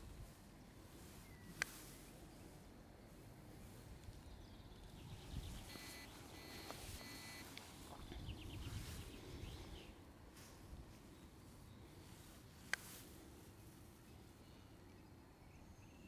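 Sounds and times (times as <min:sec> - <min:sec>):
birds chirping: 0:00.0 - 0:16.0
light click: 0:01.6 - 0:01.8.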